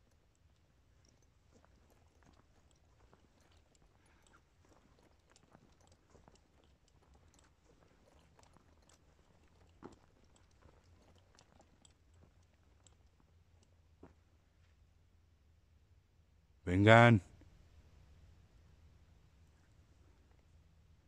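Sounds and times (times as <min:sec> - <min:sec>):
faint clicks and crackles: 0:00.0 - 0:14.2.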